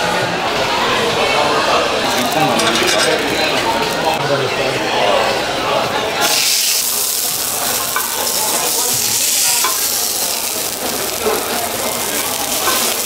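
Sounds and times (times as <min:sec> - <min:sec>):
pork sizzling on a griddle: 0:06.2 - 0:13.0.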